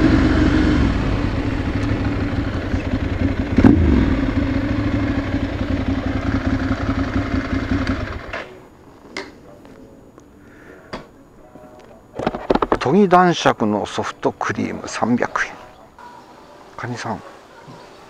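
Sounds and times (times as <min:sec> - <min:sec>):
motorcycle engine at low speed: 0:00.0 - 0:08.4.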